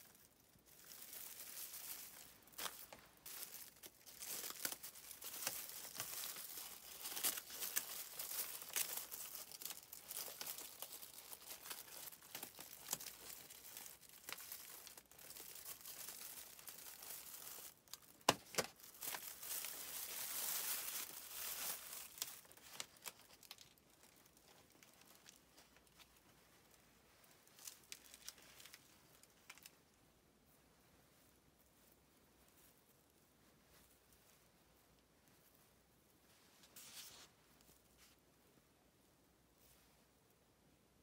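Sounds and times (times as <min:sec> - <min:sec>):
plastic wrapping crinkling and tearing: 0:00.0 - 0:29.8.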